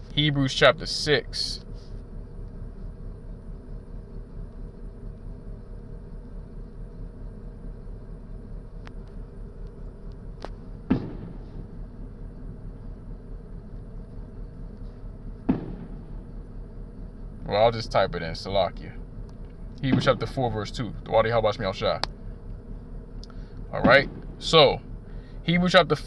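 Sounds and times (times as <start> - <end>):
low background rumble and hum: 0.0 - 26.0
short thump: 10.4 - 11.7, 15.4 - 16.2.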